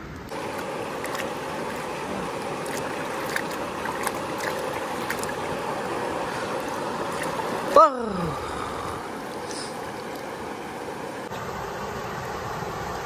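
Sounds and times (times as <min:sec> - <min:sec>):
river water running over stones: 0:00.0 - 0:13.0
small water splashes and drips: 0:00.2 - 0:08.3, 0:09.0 - 0:11.0.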